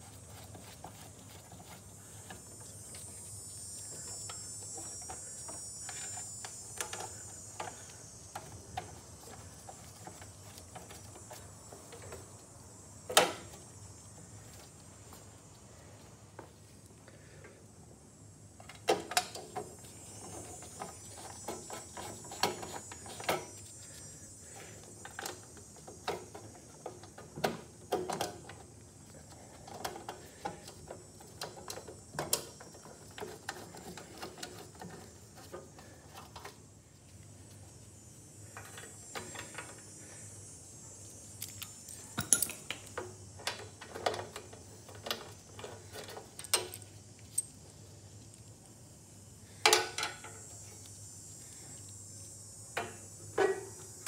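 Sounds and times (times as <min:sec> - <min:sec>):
tools clattering: 0:41.4 - 0:43.0.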